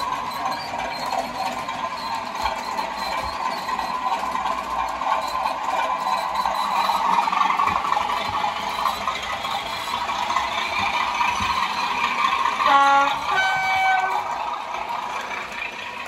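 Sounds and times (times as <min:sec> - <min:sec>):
diesel locomotive engine drone: 0:00.0 - 0:16.0
two-tone locomotive horn: 0:12.6 - 0:14.4.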